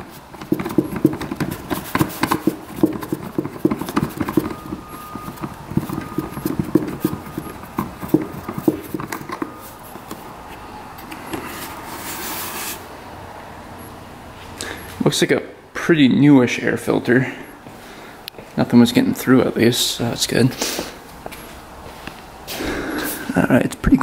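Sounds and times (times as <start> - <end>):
parts knocking and clattering: 0.0 - 10.2.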